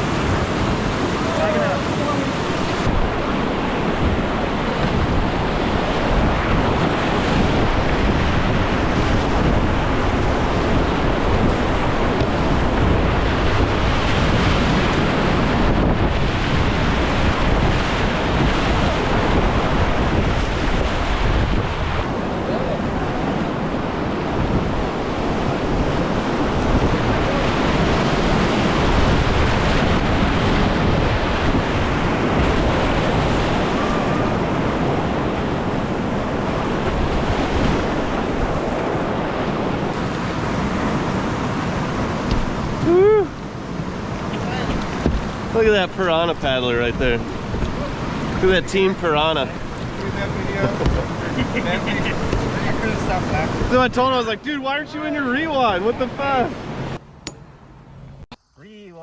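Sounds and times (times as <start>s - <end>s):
whitewater rapids rushing: 0.0s - 21.3s
wind buffeting microphone: 0.0s - 54.2s.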